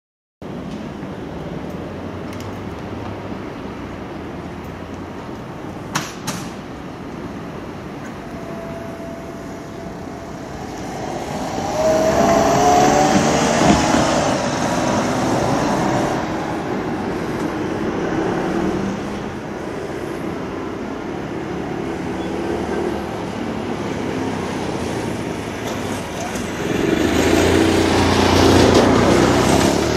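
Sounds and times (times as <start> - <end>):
background traffic hum: 0.4 - 29.9
vehicle passing close: 8.2 - 19.9, 21.8 - 29.9.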